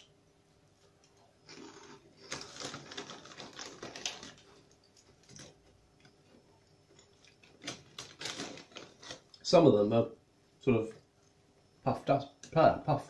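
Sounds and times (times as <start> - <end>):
puffed crisp crunching: 1.5 - 4.6.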